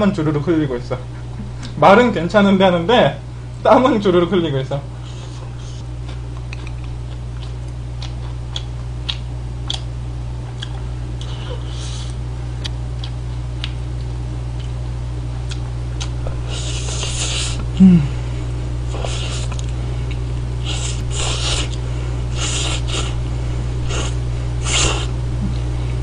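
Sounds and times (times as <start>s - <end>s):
steady low hum: 0.0s - 26.0s
person slurping noodles: 18.9s - 19.6s, 20.6s - 23.2s, 23.9s - 25.1s.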